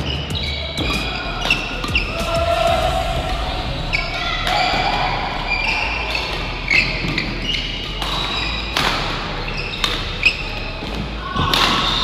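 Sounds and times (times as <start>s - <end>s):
shoes squeaking on court: 0.0s - 2.0s, 6.7s - 8.8s
racket hitting shuttlecock: 7.9s - 12.0s.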